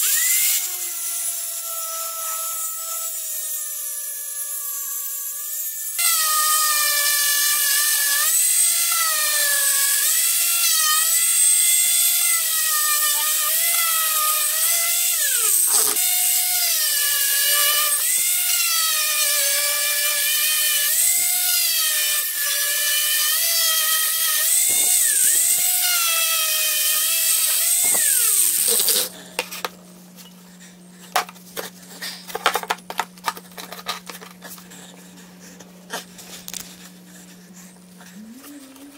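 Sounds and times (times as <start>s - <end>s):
angle grinder grinding steel: 0.0s - 30.4s.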